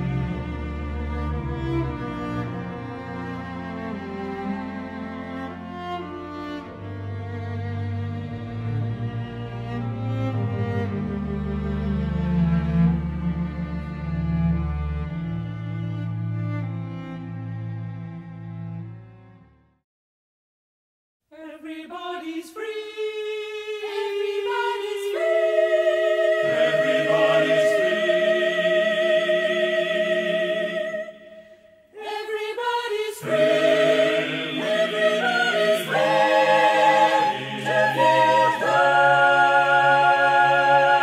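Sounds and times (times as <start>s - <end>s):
wordless choral singing: 21.4s - 41.0s.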